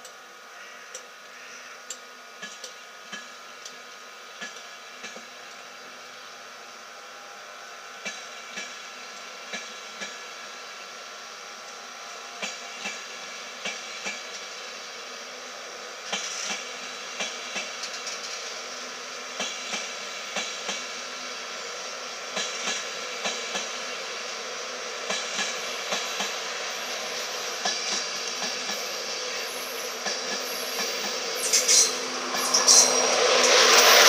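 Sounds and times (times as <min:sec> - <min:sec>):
train coaches rolling past: 0:02.0 - 0:34.0.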